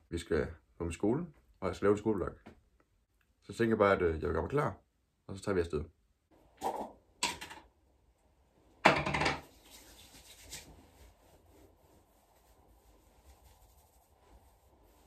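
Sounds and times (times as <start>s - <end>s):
faint rustling: 9.4s - 15.0s.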